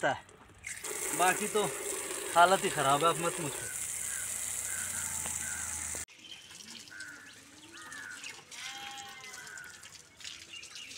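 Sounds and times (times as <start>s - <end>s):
birds calling: 0.4s - 10.9s
water gushing and splashing: 0.8s - 6.1s.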